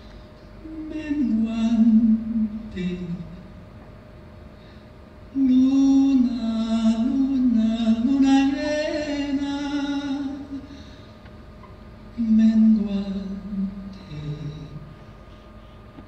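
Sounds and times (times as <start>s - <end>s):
person chanting wordless melody: 0.6s - 3.5s, 5.4s - 10.7s, 12.2s - 15.0s.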